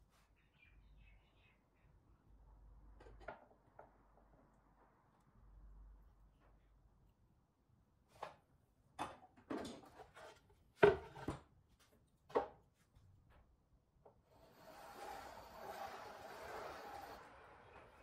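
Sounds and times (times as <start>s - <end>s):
pencil scratching on wood: 14.3s - 17.3s.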